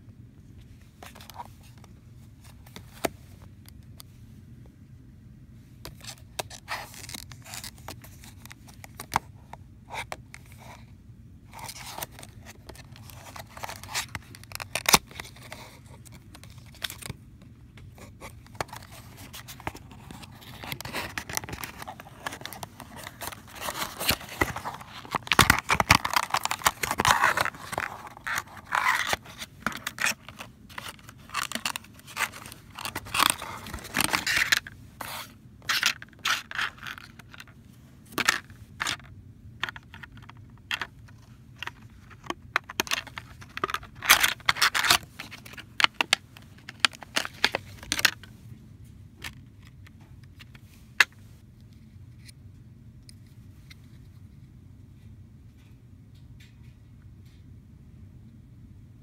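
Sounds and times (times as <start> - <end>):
plastic packaging rustling: 11.6 - 17.2, 18.0 - 48.3.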